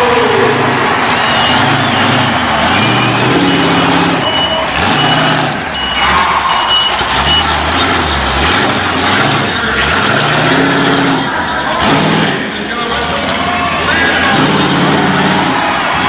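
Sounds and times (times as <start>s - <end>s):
monster truck engine revving: 0.0s - 16.0s
high electronic beeps: 0.9s - 8.4s.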